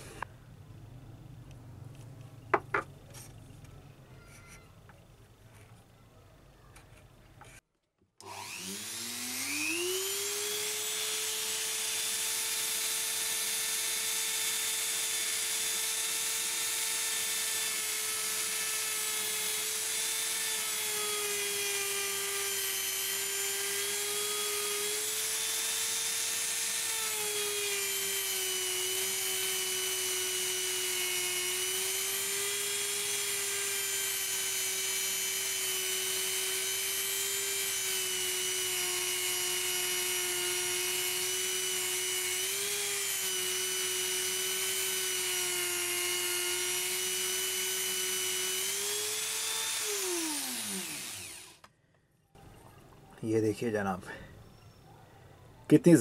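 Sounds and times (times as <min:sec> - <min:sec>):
rotary tool whining: 0:08.2 - 0:51.8.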